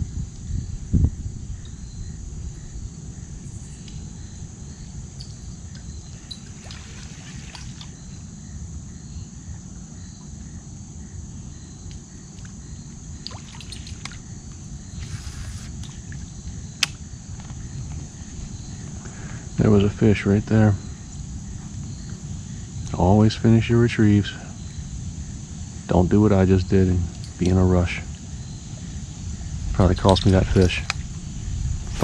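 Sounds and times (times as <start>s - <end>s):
water trickling and sloshing: 3.4s - 8.5s, 12.4s - 18.9s.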